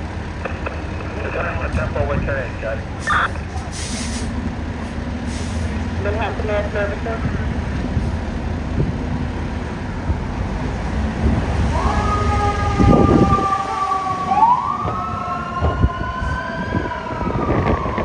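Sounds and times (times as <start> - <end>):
emergency vehicle siren: 11.5 - 18.0.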